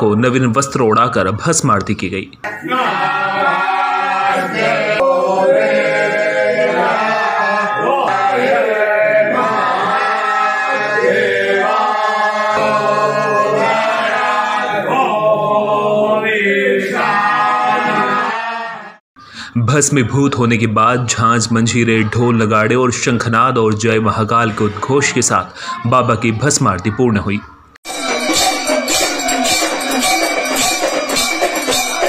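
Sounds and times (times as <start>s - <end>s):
men chanting in unison: 2.6s - 19.0s.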